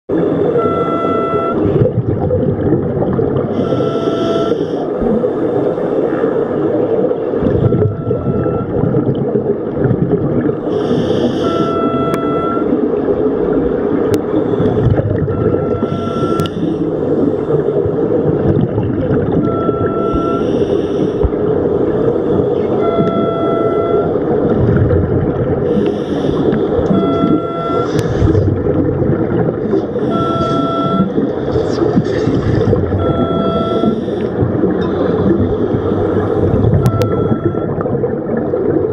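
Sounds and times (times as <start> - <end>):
rushing underwater background: 0.1 - 38.9
hissing exhaled bubbles: 1.7 - 12.0, 12.6 - 38.9
regulator humming tone on inhalation: 3.6 - 4.9, 10.7 - 12.7, 15.4 - 17.5, 19.6 - 21.3, 25.7 - 28.4, 29.8 - 31.1, 32.6 - 37.7.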